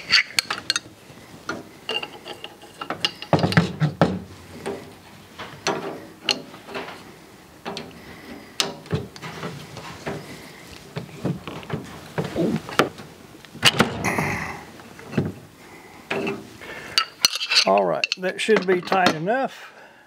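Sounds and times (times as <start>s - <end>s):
wrenches clicking and clanking on valve: 0.0s - 11.8s, 16.1s - 19.3s.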